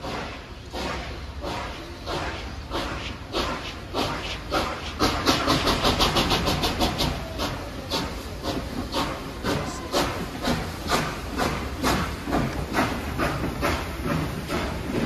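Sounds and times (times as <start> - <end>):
steam hiss: 0.0 - 15.0
steam locomotive exhaust chuffs: 0.0 - 15.0.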